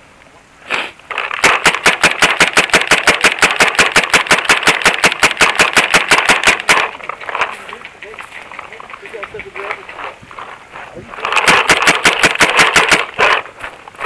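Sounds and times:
paintball marker firing rapidly: 1.2 - 7.0, 11.3 - 13.4.

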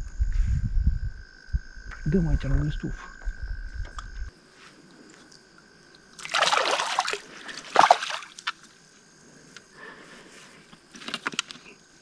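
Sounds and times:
fish splashing in water: 6.2 - 8.6.

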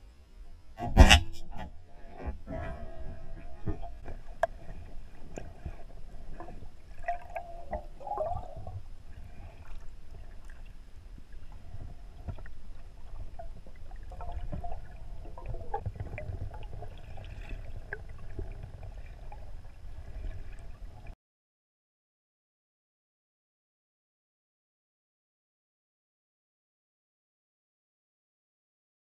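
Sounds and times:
underwater rumble of moving water: 0.0 - 21.2.

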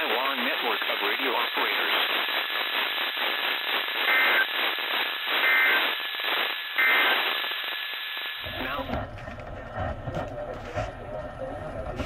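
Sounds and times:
warbling two-tone data bursts: 0.0 - 8.6
radio hiss: 0.0 - 9.1.

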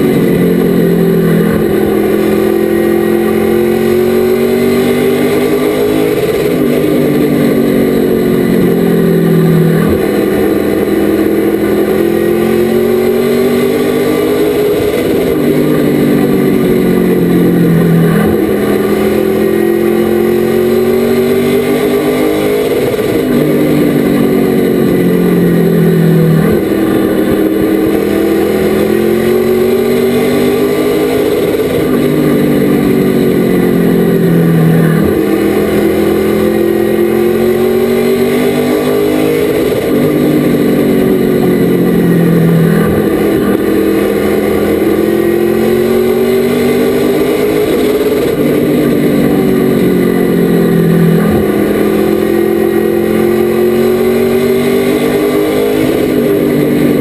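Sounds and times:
race truck engine accelerating: 0.0 - 57.0.

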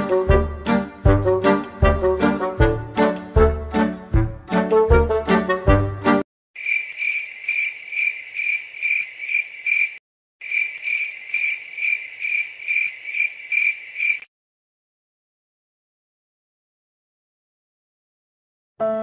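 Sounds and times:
brass music: 0.0 - 6.2
crickets chirping: 6.6 - 14.3.

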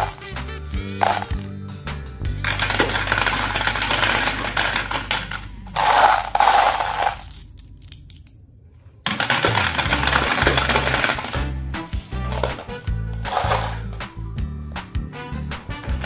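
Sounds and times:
marbles rattling in plastic basin: 0.0 - 1.4, 2.4 - 7.9, 9.1 - 11.5, 12.2 - 14.0
background music: 0.0 - 7.2, 9.2 - 16.0
marbles clattering into plastic drum: 0.8 - 1.4, 2.4 - 8.2, 9.1 - 11.5, 12.3 - 14.0.

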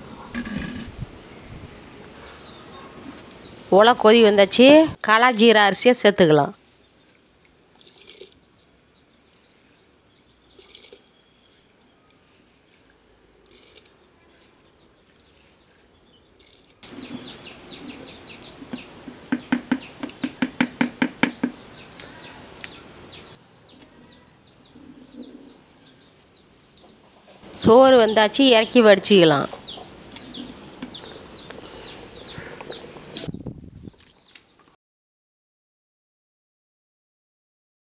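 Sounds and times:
small birds chirping: 6.6 - 34.6.

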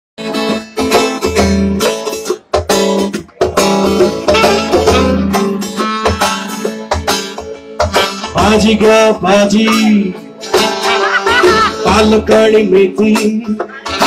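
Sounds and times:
strummed guitar chords: 0.2 - 14.0.

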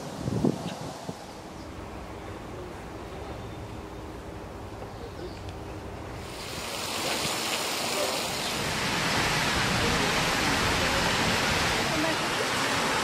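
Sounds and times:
water rushing over cascade: 6.1 - 13.0.

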